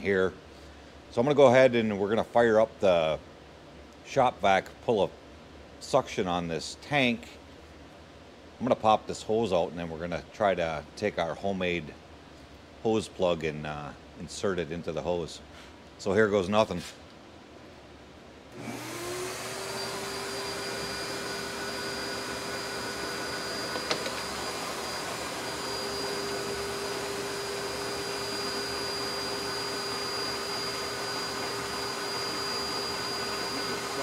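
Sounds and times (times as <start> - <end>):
shop vac motor whine: 18.5 - 34.0.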